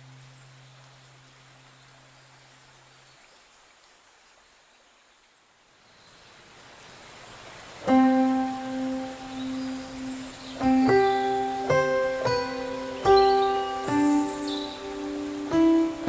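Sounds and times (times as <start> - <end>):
faint hiss: 0.0 - 16.0
background music: 7.9 - 16.0.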